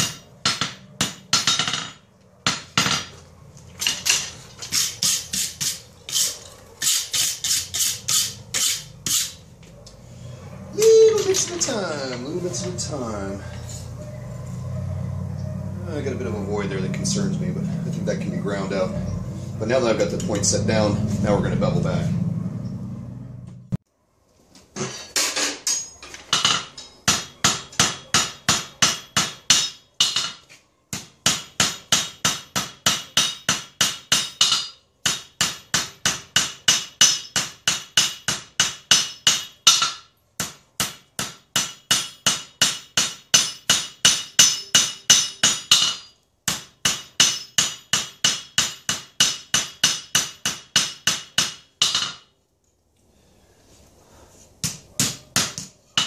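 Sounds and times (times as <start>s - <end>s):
hammer striking steel on anvil: 0.0s - 3.1s, 3.8s - 9.4s, 25.2s - 52.3s, 54.6s - 56.0s.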